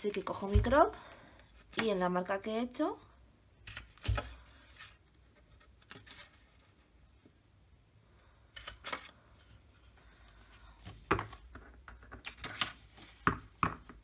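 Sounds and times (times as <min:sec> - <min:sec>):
paper stack tapping and knocking: 0:11.0 - 0:14.0.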